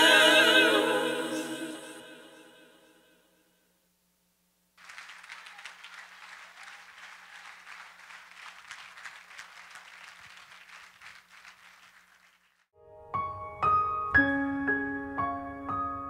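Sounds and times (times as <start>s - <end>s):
congregation applauding: 4.8s - 12.7s.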